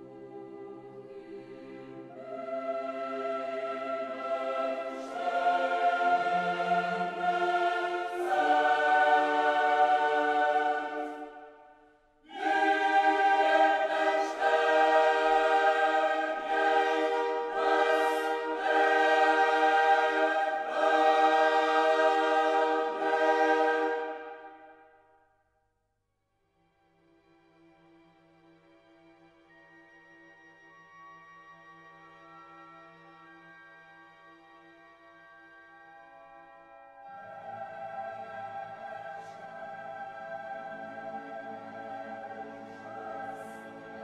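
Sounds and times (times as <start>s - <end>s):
choir singing held chords: 0.0s - 25.0s, 37.0s - 44.0s.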